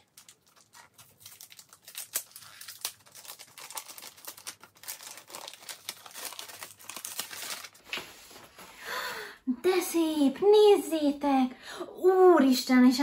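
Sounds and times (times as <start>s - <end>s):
wrapping paper crinkling: 0.0s - 8.8s.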